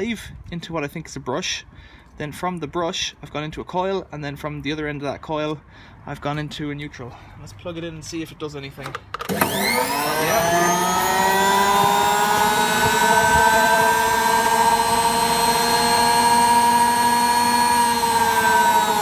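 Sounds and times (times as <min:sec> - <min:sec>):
electric motor whining: 0:09.2 - 0:19.0.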